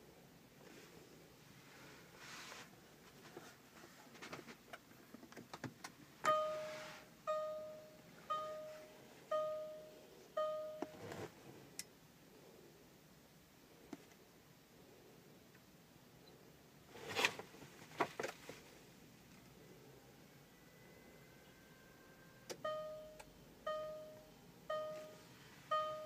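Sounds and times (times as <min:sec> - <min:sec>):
car warning chime: 0:06.2 - 0:11.0, 0:21.7 - 0:26.0.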